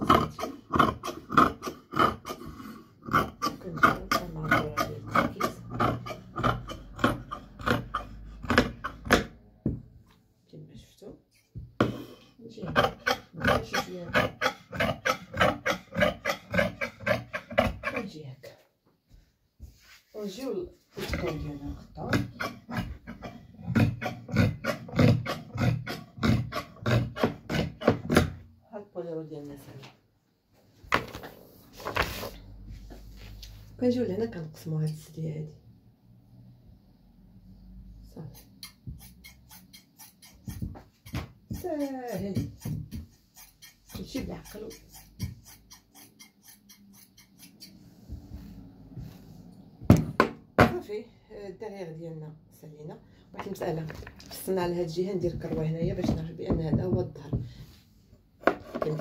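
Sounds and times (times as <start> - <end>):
scissors snipping fabric: 38.4 - 47.8.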